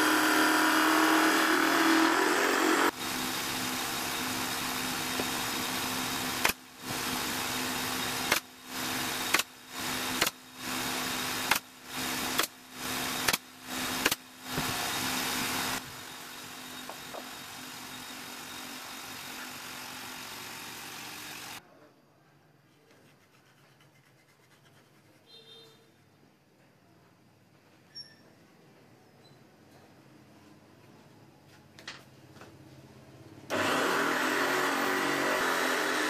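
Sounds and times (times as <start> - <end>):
drum sander grinding wood: 0.0 - 6.4, 33.5 - 36.0
nail gun firing: 6.4 - 6.6, 8.2 - 8.5, 9.3 - 9.5, 10.1 - 10.4, 11.4 - 12.6, 13.2 - 14.2.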